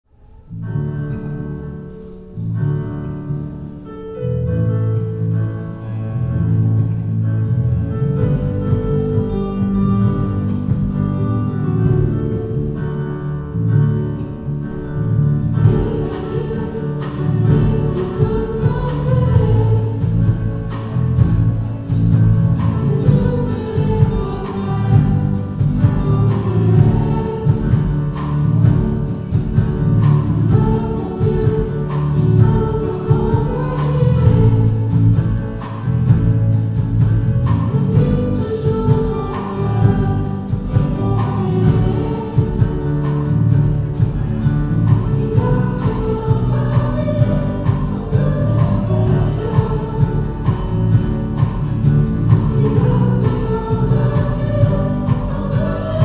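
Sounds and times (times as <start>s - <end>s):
keyboard: 0.0s - 56.0s
electric bass: 0.5s - 56.0s
drum kit beat: 8.2s - 12.8s, 15.6s - 56.0s
people singing: 15.5s - 56.0s.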